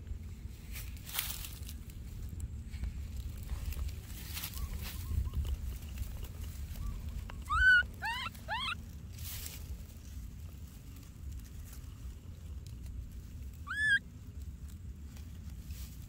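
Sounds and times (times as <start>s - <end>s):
low steady rumble: 0.0s - 16.0s
baby monkey crying: 7.4s - 8.8s, 13.6s - 14.0s.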